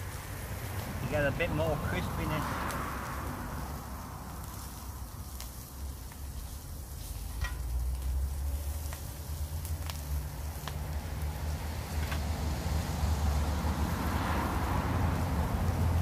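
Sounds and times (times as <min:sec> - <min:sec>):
sausages sizzling in a frying pan: 0:00.0 - 0:16.0
metal tongs clicking on a pan: 0:07.3 - 0:07.7.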